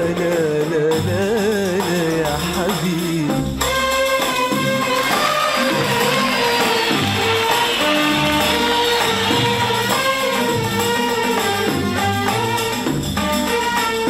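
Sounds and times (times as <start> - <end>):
percussion: 0.0 - 14.0
band playing melody: 3.7 - 14.0.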